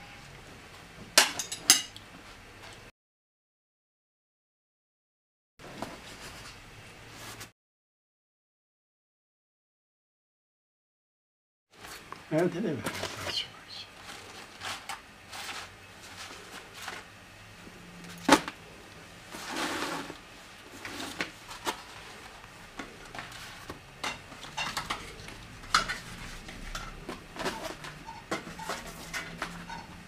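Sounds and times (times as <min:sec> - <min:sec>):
dishes and cutlery clinking: 0:01.2 - 0:02.0, 0:24.0 - 0:30.0.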